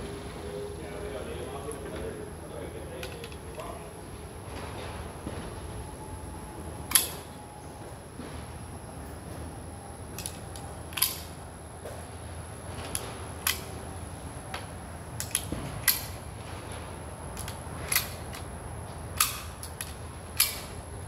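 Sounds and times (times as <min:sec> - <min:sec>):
cartridges clicking into magazine: 0:06.9 - 0:07.4, 0:10.2 - 0:11.4, 0:12.8 - 0:13.8, 0:15.2 - 0:16.2, 0:17.3 - 0:18.5, 0:19.1 - 0:20.8.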